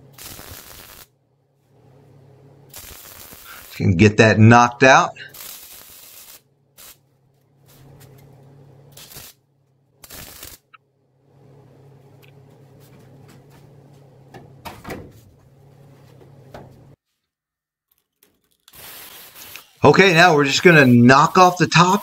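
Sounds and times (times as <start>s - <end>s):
low electrical hum: 0.0s - 17.3s, 17.9s - 22.0s
handling knocks and scrapes: 12.4s - 17.3s.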